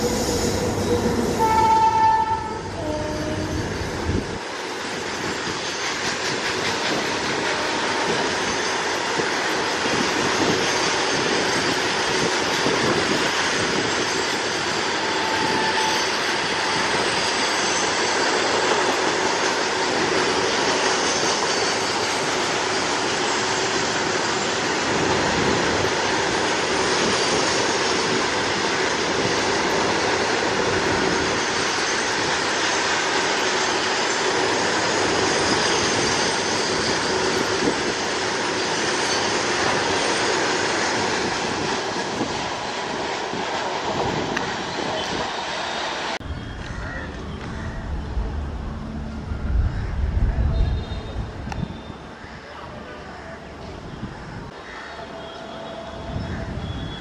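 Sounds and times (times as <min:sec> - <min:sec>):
train wheels rumbling on rails: 0:00.0 - 0:52.2
high wheel squeal: 0:05.2 - 0:28.4, 0:30.8 - 0:41.6, 0:54.6 - 0:57.0.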